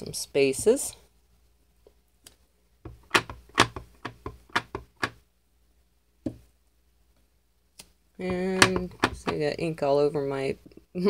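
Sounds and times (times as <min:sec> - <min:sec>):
acrylic block knocking on ink pad: 0:08.3 - 0:09.3.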